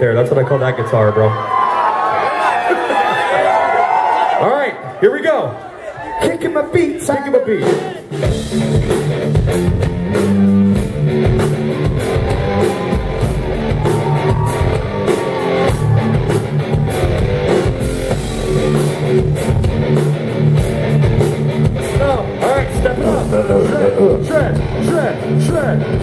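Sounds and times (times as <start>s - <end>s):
drums steady beat: 6.8s - 26.0s
electric guitar riff: 8.2s - 26.0s.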